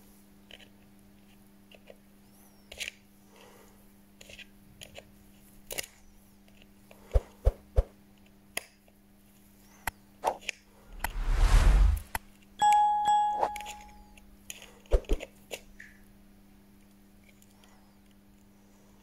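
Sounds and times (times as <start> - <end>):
steady low hum: 10.7 - 14.4.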